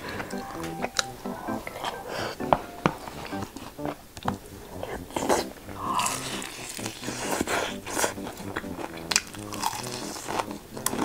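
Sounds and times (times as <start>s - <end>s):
crunching fried chicken: 5.1s - 11.0s.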